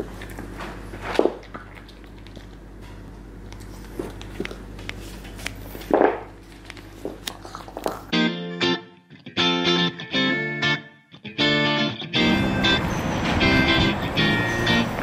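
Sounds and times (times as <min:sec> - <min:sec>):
puppy chewing carrot crunches: 0:00.0 - 0:08.1
steady low hum: 0:00.0 - 0:09.1.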